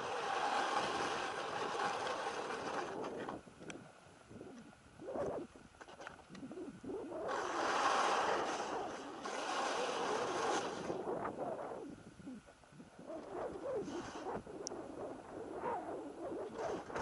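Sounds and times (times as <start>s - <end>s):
skis hissing through snow: 0.0s - 2.9s, 7.3s - 11.0s, 13.7s - 14.3s.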